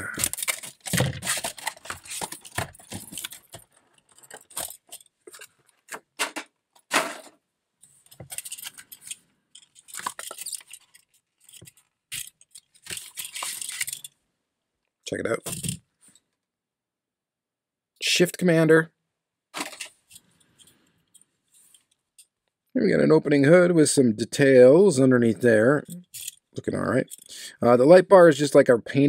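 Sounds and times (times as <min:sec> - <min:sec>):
plastic and cardboard rustling: 0:00.0 - 0:14.1, 0:19.6 - 0:20.2.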